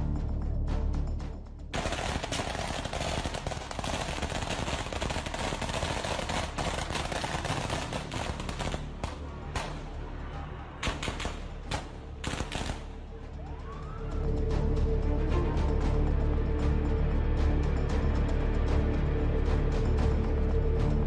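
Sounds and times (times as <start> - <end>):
background music: 0.0 - 21.0
rapid automatic gunfire: 1.8 - 9.2, 10.8 - 12.8.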